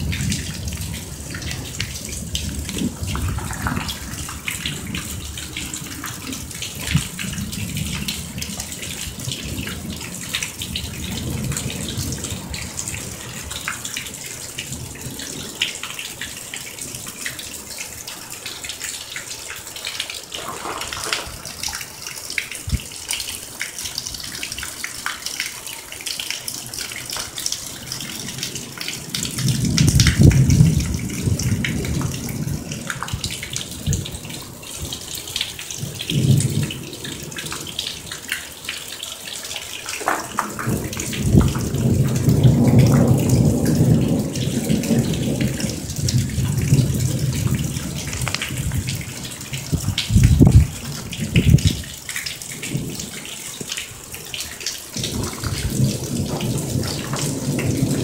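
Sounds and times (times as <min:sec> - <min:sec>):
deep thunder rumbles: 0:00.0 - 0:15.5, 0:20.3 - 0:22.9, 0:27.0 - 0:35.0, 0:35.7 - 0:37.8, 0:40.0 - 0:53.2, 0:55.0 - 0:58.0
heavy rain hissing: 0:00.0 - 0:25.0, 0:39.4 - 0:58.0
water streaming off roof: 0:00.0 - 0:58.0.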